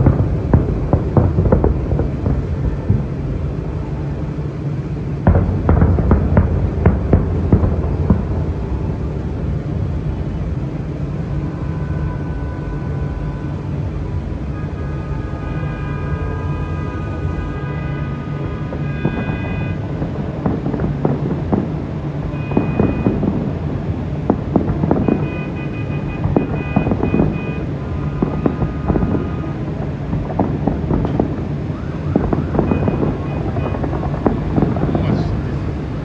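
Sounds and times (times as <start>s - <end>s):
low rumble: 0.0s - 14.6s
fireworks bangs and crackles: 0.0s - 36.0s.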